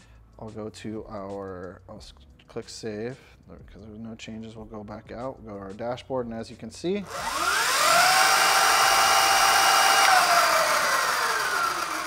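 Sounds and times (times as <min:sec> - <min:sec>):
electric motor whine: 0:07.1 - 0:12.0.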